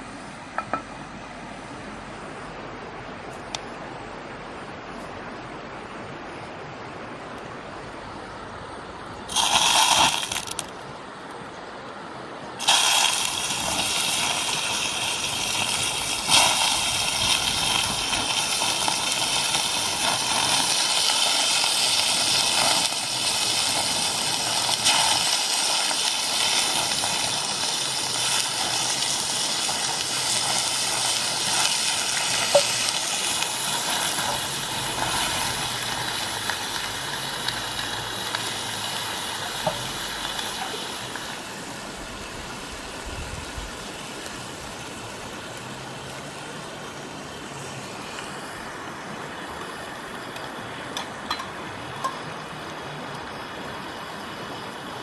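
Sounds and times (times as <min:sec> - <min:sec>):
food sizzling in hot oil: 0:09.3 - 0:10.7, 0:12.6 - 0:46.6.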